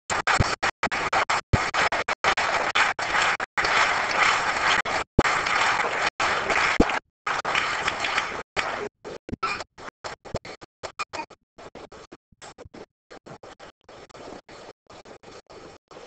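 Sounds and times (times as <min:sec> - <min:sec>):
audience applauding: 0:00.1 - 0:08.9.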